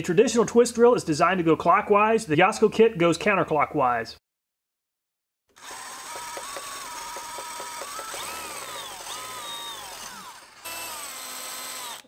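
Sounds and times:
drill bit grinding on screw: 5.6s - 12.0s
drill motor whine: 5.6s - 12.0s.

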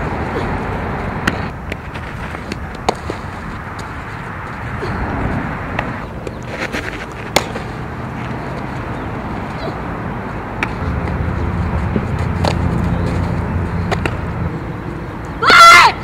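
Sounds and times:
softball smacks: 7.3s - 7.6s.

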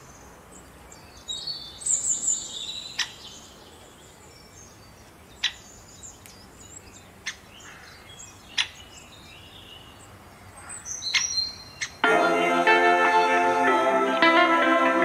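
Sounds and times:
birds chirping: 0.0s - 12.6s
guitar music: 12.0s - 15.0s.

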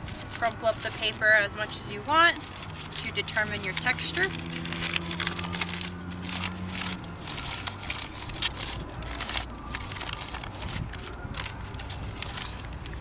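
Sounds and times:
paper crumpling: 0.0s - 13.0s.

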